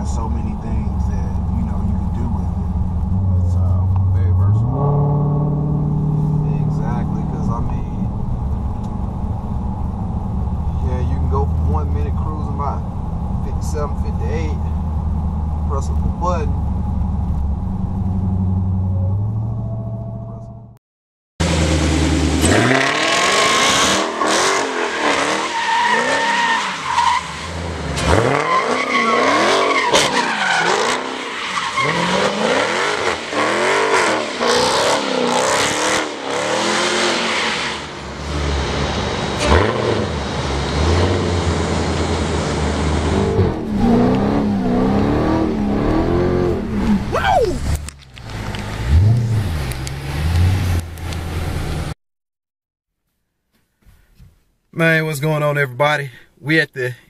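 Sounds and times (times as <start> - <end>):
car engine revving: 0.0 - 20.7, 21.4 - 52.0
tires squealing: 21.5 - 51.3.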